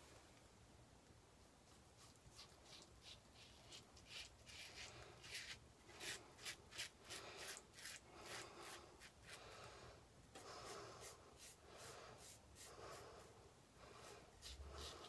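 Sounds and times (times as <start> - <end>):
razor scraping stubble: 2.0 - 9.4.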